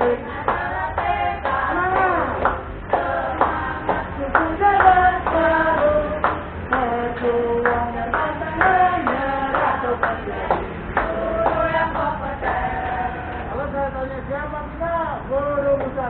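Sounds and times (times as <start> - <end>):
voices singing a chant: 0.0 - 16.0
hand claps: 0.5 - 12.6.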